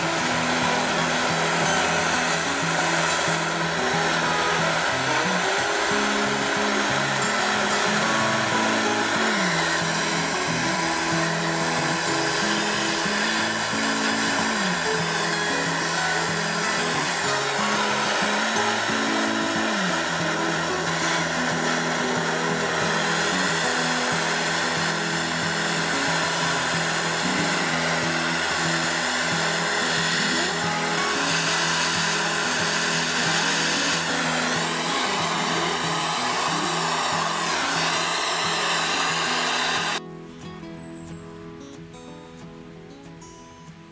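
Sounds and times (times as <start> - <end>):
blowtorch flame hissing: 0.0 - 40.0.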